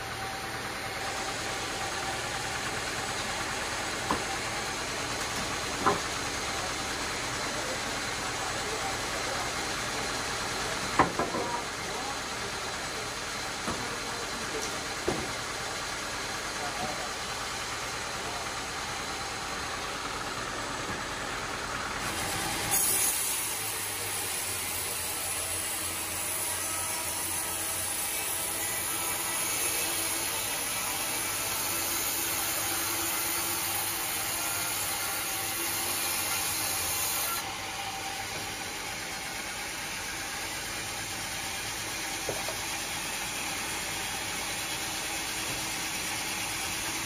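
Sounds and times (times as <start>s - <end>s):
band saw running: 0.0s - 47.0s
saw blade cutting log: 21.9s - 47.0s.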